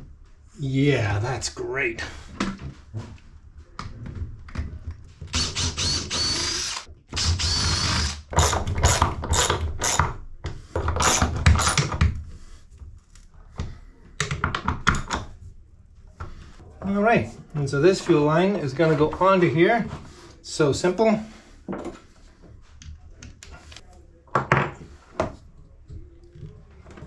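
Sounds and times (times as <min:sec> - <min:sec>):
power drill whining: 0:05.3 - 0:10.0.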